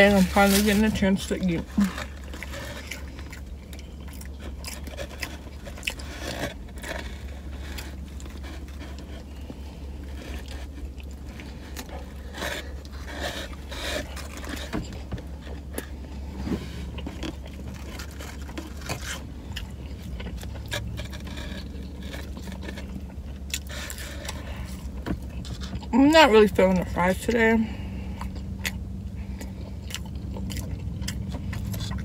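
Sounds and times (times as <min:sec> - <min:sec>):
paper wrapper rustling: 0:00.0 - 0:02.9
person chewing a sandwich: 0:00.0 - 0:25.9, 0:27.6 - 0:32.0
steady low hum: 0:00.0 - 0:32.0.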